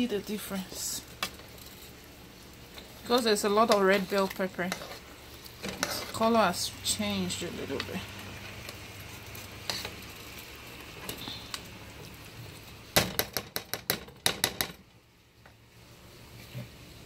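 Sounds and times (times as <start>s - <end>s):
food sizzling in frying pan: 0.0s - 13.0s.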